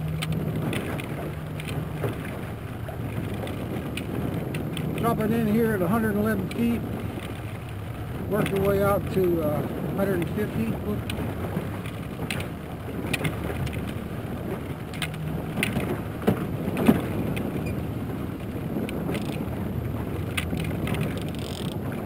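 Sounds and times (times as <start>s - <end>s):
fishing gear clicks and knocks: 0.0s - 2.4s, 3.1s - 5.2s, 11.0s - 14.0s, 14.8s - 17.7s, 18.8s - 19.5s, 20.3s - 21.9s
outboard motor running: 0.0s - 22.0s
water noise: 0.0s - 22.0s
wind noise: 0.0s - 22.0s.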